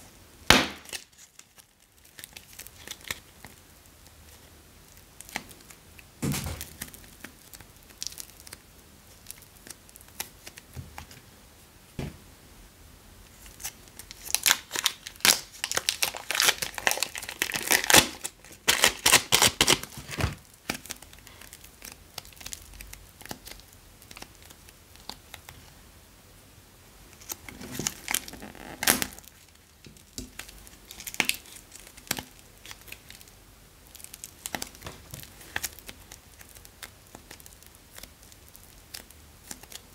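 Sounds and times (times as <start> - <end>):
bags crinkling and tearing: 13.4 - 24.5, 27.2 - 39.9.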